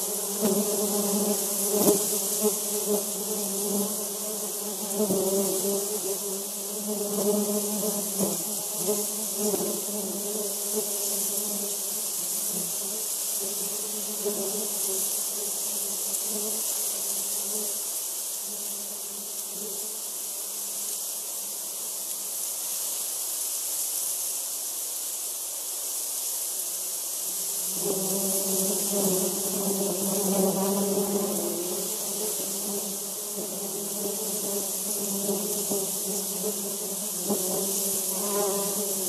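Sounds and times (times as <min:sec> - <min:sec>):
steady high hiss: 0:00.0 - 0:39.0
bees buzzing: 0:27.6 - 0:39.0.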